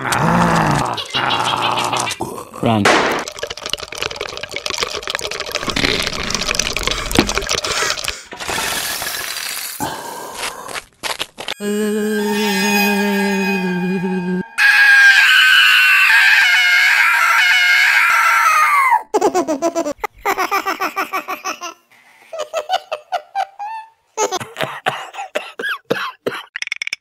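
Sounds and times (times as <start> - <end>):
high-pitched wavering squeal: 11.6 - 16.2
cartoon giggling laughter: 19.1 - 21.8, 22.4 - 24.8.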